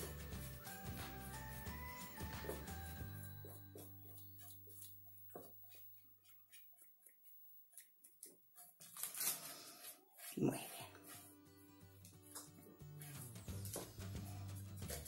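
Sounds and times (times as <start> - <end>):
background music: 0.0 - 4.2.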